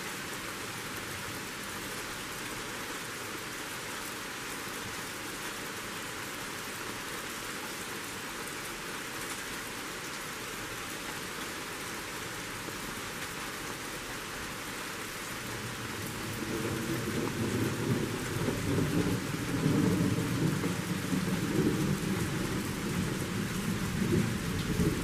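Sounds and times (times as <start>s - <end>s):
rain falling on leafy trees: 0.0s - 25.0s
low rumble of thunder: 15.6s - 25.0s.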